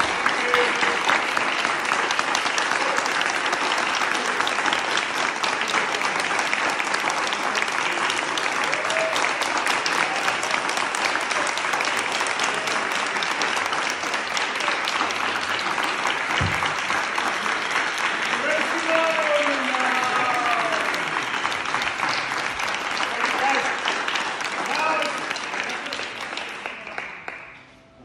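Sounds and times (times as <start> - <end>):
audience applauding: 0.0 - 27.8.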